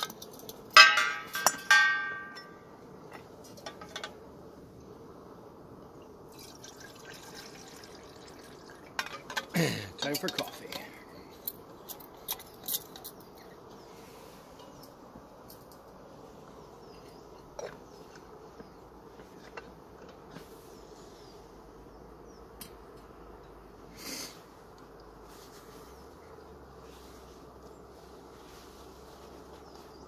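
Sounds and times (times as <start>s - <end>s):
camping stove hissing: 5.6s - 11.8s, 23.7s - 24.8s.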